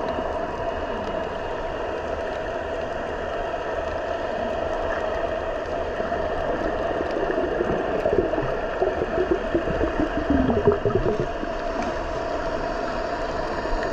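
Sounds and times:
gurgling water: 0.0s - 13.9s
underwater drone and hiss: 0.0s - 13.9s.

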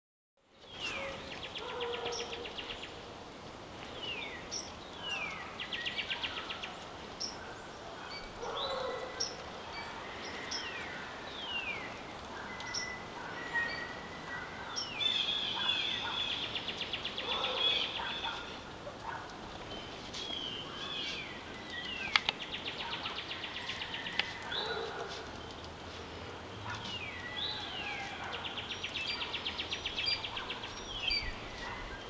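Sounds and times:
songbirds whistling: 8.1s - 18.6s, 26.6s - 32.0s.

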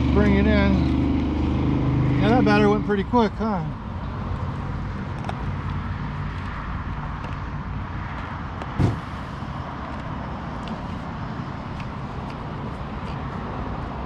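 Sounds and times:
thump: 8.8s - 9.1s.

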